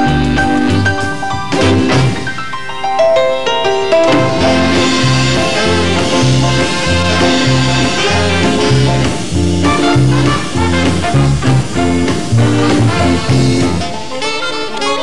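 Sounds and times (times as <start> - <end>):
big band swing music: 0.0 - 15.0.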